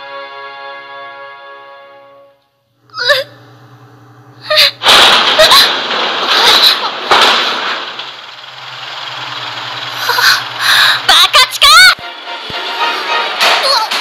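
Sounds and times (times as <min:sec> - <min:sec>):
low steady hum: 0:02.4 - 0:13.4.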